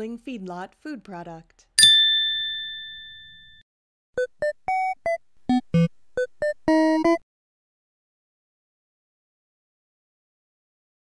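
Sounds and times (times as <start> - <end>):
chime: 1.8 - 3.6.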